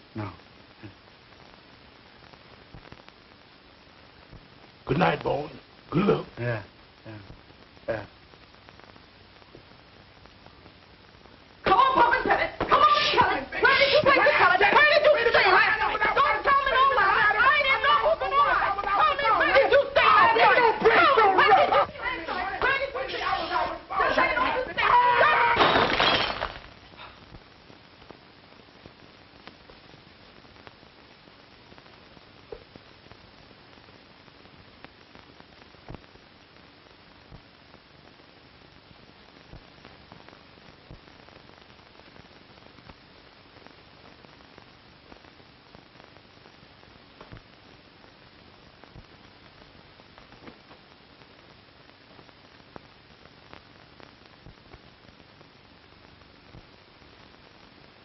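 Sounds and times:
faint clicks and crackles: 0:00.0 - 0:13.4, 0:26.3 - 0:58.0
film soundtrack hiss: 0:00.0 - 0:58.0.

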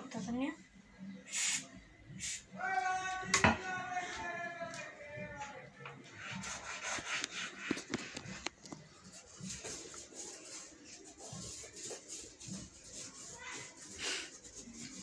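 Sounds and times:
toothbrush scrubbing wood: 0:06.2 - 0:15.0.

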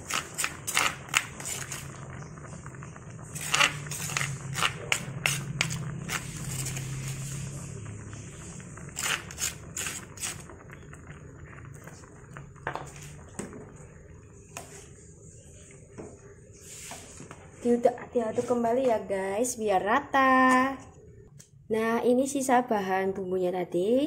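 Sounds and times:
spoon scraping mortar: 0:00.0 - 0:01.9, 0:03.4 - 0:07.2, 0:09.0 - 0:10.4
pot boiling: 0:00.0 - 0:21.3.

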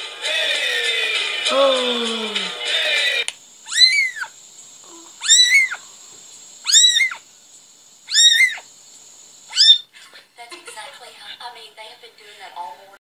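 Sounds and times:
kitten mewing: 0:01.5 - 0:02.6, 0:03.7 - 0:04.3, 0:04.9 - 0:05.8, 0:06.6 - 0:07.2, 0:08.1 - 0:08.6, 0:09.5 - 0:09.9.

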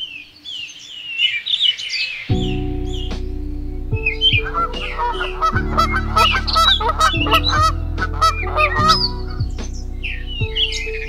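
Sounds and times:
slow sustained chord music: 0:02.3 - 0:11.0
birds calling: 0:04.0 - 0:11.0.

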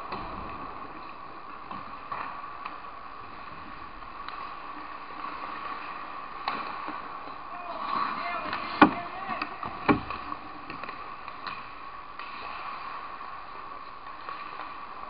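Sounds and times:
hockey sticks and puck clacking: 0:06.4 - 0:15.0.

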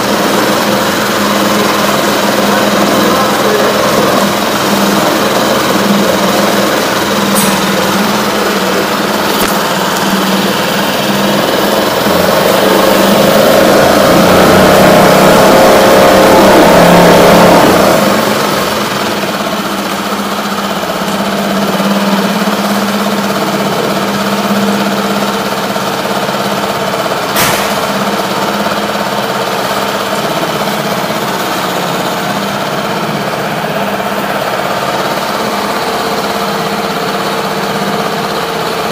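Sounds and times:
outboard motor running: 0:00.0 - 0:38.9.

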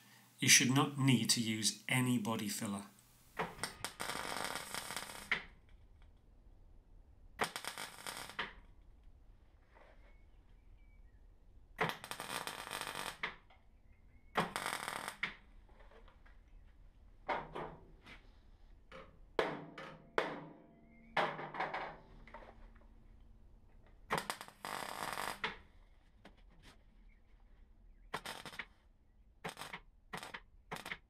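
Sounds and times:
welder crackling: 0:02.4 - 0:05.5, 0:07.4 - 0:08.6, 0:11.8 - 0:13.4, 0:14.4 - 0:15.4, 0:24.1 - 0:25.5, 0:28.2 - 0:28.7, 0:29.4 - 0:31.0.

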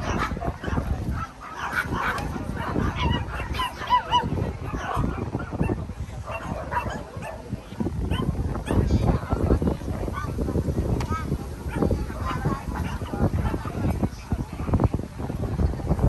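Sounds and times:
small dogs yapping: 0:00.0 - 0:07.4, 0:08.1 - 0:08.8.

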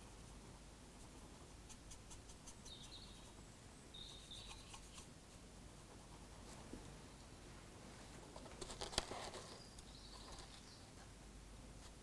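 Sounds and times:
faint high chirps: 0:02.6 - 0:04.9
paintbrush ticking on plastic: 0:04.0 - 0:05.1.

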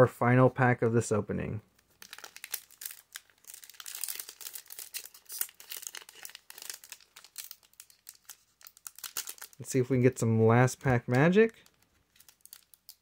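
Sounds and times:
foil wrapper crinkling and tearing: 0:01.9 - 0:09.7, 0:11.3 - 0:13.0.

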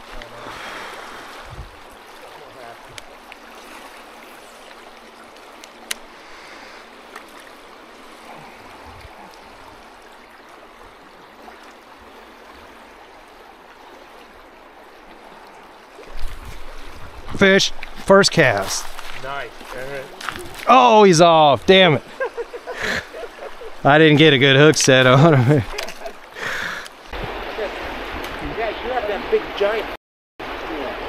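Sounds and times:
river water rushing over gravel: 0:00.0 - 0:31.0.

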